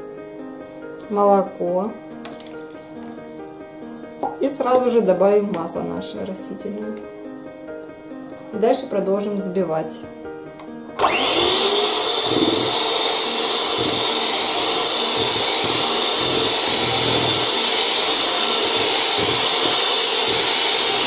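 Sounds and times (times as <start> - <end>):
electric hand mixer whirring: 11.0 - 21.0.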